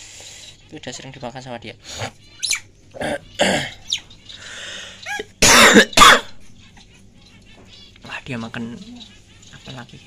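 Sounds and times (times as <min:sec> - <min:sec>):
person coughing harshly: 0:03.0 - 0:03.7, 0:05.1 - 0:06.4.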